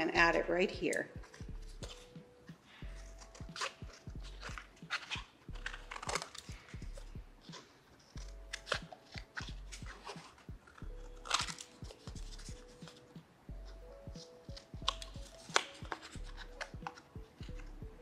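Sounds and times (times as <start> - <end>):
paper rustling: 1.2 - 13.2, 14.2 - 17.6
scissors snipping paper: 2.8 - 13.1, 14.2 - 17.6.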